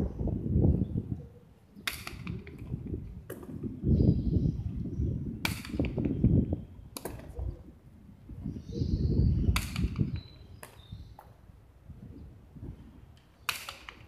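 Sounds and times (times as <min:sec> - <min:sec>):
hard ball cracking against wall: 0:01.9 - 0:03.6, 0:05.4 - 0:06.2, 0:09.5 - 0:10.8, 0:13.5 - 0:14.0.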